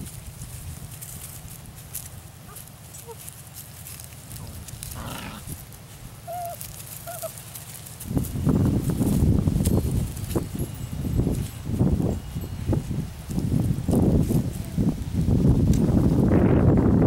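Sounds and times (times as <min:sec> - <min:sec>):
rough scuffling: 0:00.0 - 0:16.1
puppies squeaking and yipping: 0:02.5 - 0:05.6, 0:06.2 - 0:07.8.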